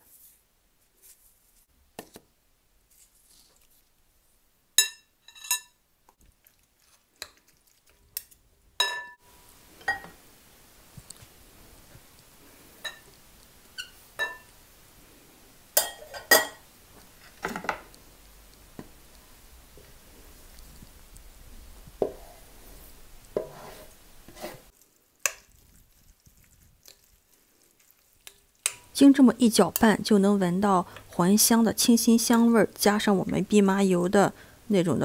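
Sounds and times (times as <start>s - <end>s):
spoon clinking on glass bowl: 8.8s - 9.2s.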